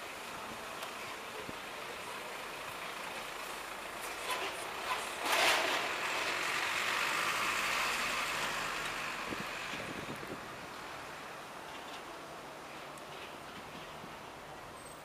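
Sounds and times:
street traffic: 0.0s - 15.0s
truck rumble and hiss: 0.0s - 15.0s.

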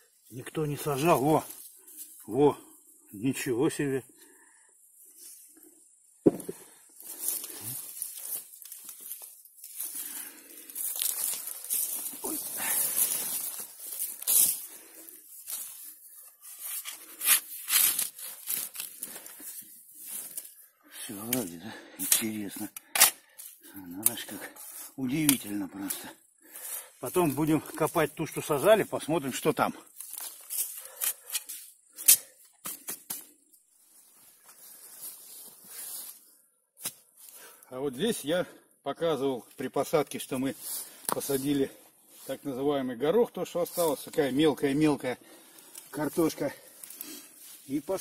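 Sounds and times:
spade digging into soil: 16.7s - 18.2s.

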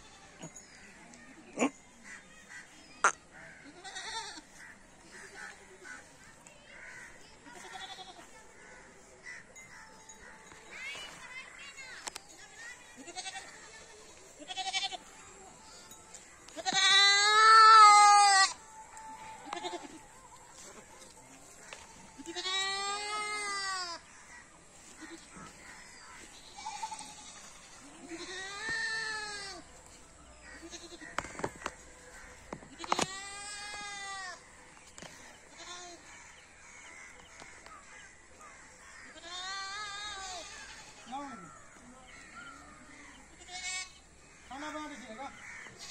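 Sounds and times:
goats bleating: 3.6s - 6.0s, 7.4s - 8.3s, 13.0s - 15.2s, 16.6s - 18.6s, 19.4s - 20.1s, 22.2s - 24.0s, 26.2s - 29.7s, 30.4s - 31.3s, 35.5s - 36.1s, 39.1s - 41.1s, 43.3s - 44.0s.

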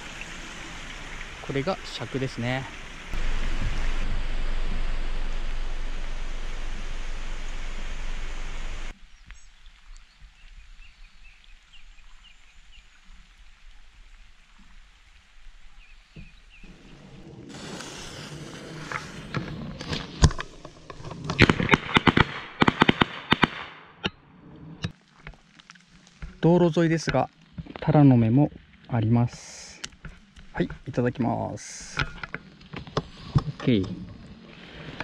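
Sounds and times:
steady rush of noise: 0.0s - 9.0s
heavy rain with low rumble: 0.0s - 21.6s.

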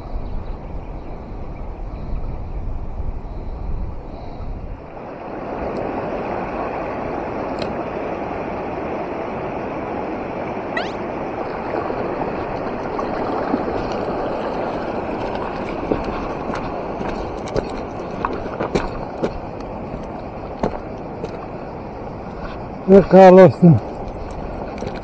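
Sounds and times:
river water rushing: 4.8s - 25.0s
brief rising chirp: 10.8s - 11.0s.

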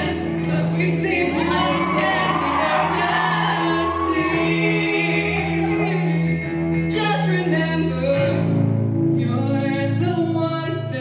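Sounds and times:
woman singing: 0.0s - 8.5s
man singing: 0.0s - 11.0s.

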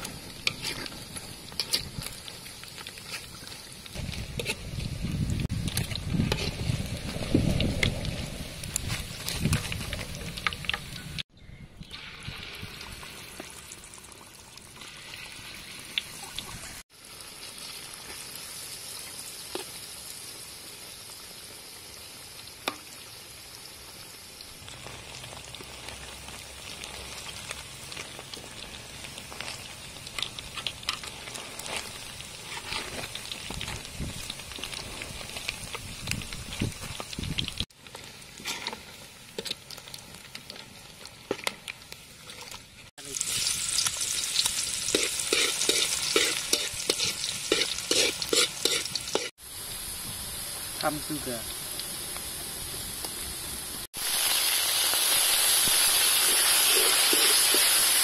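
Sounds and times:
metal spatula scraping wok: 0.0s - 2.1s, 30.6s - 33.2s, 38.4s - 39.5s, 44.8s - 49.3s
chicken deep-frying in oil: 0.0s - 58.0s.

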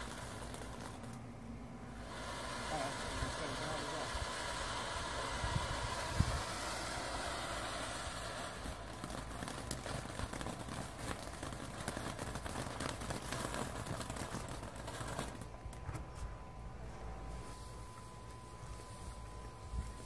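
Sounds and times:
firework hissing: 0.0s - 1.2s, 1.8s - 15.6s
firework crackling pops: 0.0s - 16.2s.

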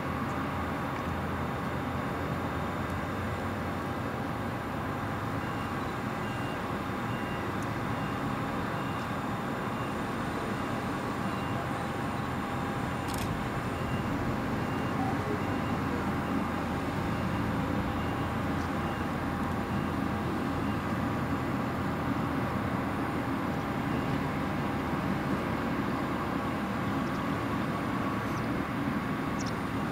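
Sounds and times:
airplane engine idling: 0.0s - 29.9s
faint high beep: 5.4s - 20.0s.

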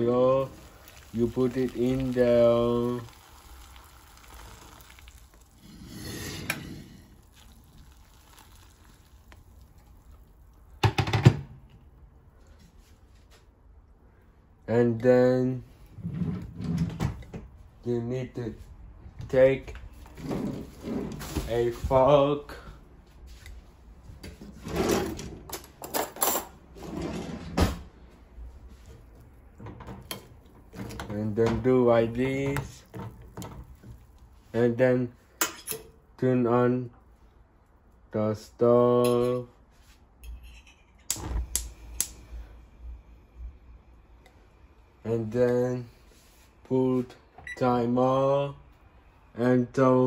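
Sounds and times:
boiling water pouring: 0.0s - 10.8s, 29.0s - 34.6s
kitchen rustles and knocks: 10.8s - 11.6s, 19.9s - 22.1s, 24.1s - 34.1s.

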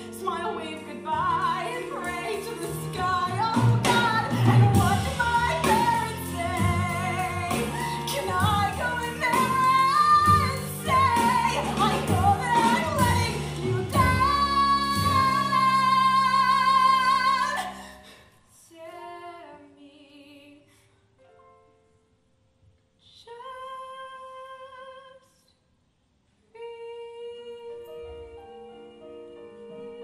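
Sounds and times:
instrumental accompaniment: 0.0s - 17.5s.

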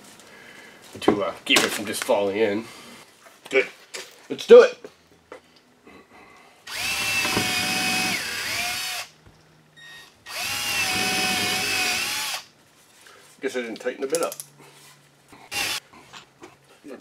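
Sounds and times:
cordless drill driving screw: 6.7s - 9.1s, 10.3s - 12.5s, 15.5s - 15.8s.

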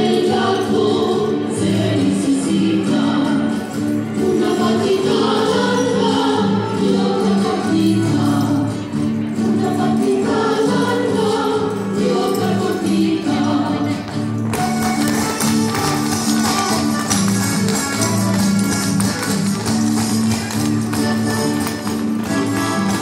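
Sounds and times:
group of voices singing: 0.0s - 14.3s
folk dance music: 0.0s - 23.0s.

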